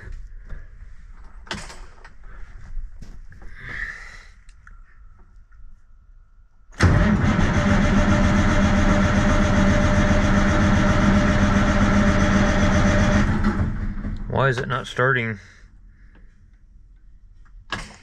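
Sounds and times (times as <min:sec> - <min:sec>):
diesel engine cranking on starter: 0:06.8 - 0:14.8.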